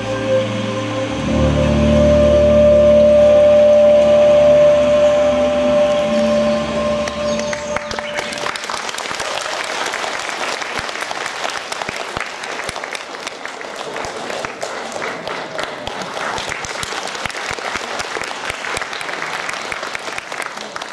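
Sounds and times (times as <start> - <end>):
audience clapping: 6.1 - 20.9.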